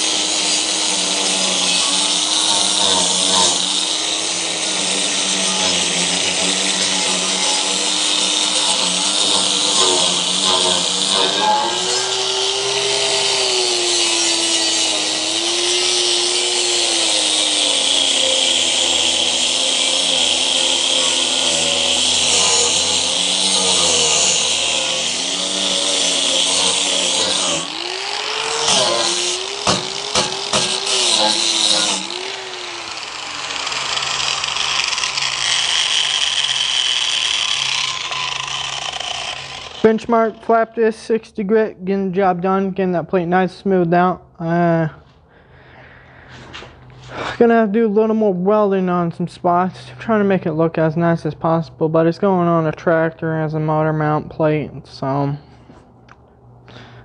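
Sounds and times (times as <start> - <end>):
abrasive grinding metal hiss: 0.0 - 39.9
angle grinder motor running: 0.0 - 40.8.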